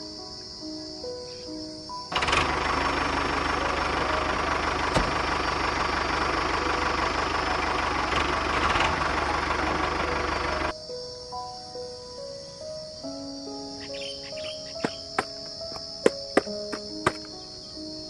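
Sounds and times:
tractor engine idling: 0:02.1 - 0:10.7.

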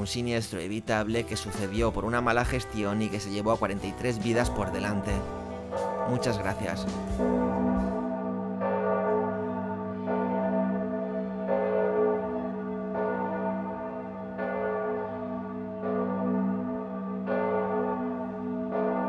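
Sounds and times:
bell tolling: 0:04.5 - 0:11.9.

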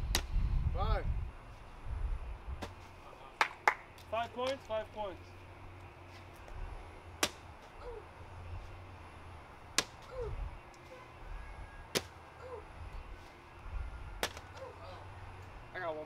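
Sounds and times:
bean bags smacking a board: 0:14.2 - 0:14.5.

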